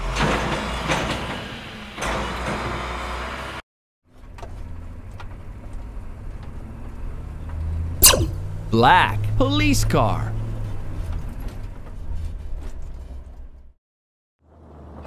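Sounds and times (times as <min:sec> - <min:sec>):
cartoon truck engine running: 0:08.1 - 0:10.7.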